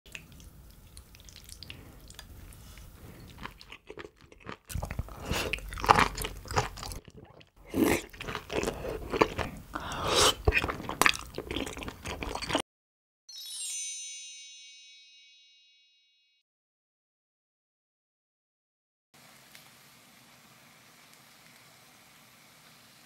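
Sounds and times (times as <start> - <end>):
person chewing food: 0.1 - 12.6.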